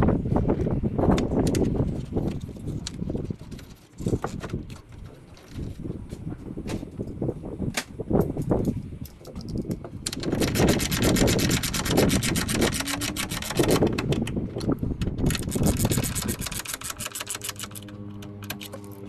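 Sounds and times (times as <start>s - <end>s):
socket ratchet clicking: 8.2s - 19.0s.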